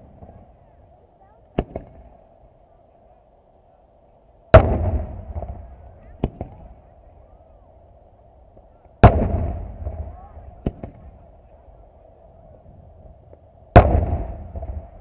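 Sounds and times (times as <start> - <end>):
faint steady hum: 0.0 - 15.0
firework cracks: 0.0 - 15.0
firework booms: 1.5 - 2.2, 4.5 - 6.9, 8.6 - 11.8, 12.6 - 15.0.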